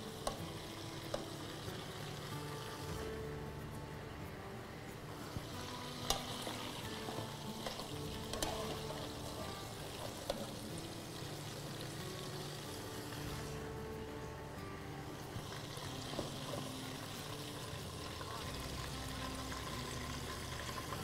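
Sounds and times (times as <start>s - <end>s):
food sizzling: 0.0s - 3.6s, 5.0s - 21.0s
faint background music: 0.0s - 21.0s.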